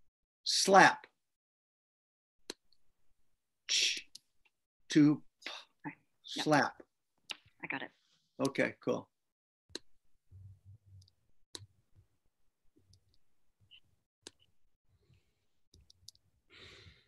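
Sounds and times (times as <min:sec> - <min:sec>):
computer mouse clicks: 0:14.2 - 0:14.5.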